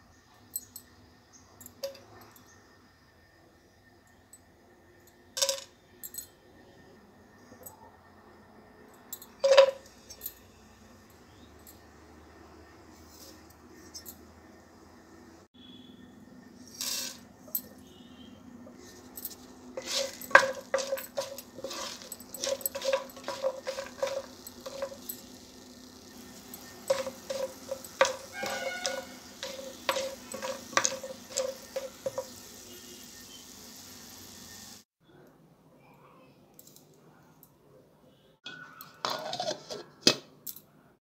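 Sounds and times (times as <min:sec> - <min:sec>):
utensil scraping and tapping pan: 0:18.7 - 0:25.2, 0:26.3 - 0:32.5, 0:38.5 - 0:40.2
spices sizzling in hot oil: 0:18.7 - 0:34.9.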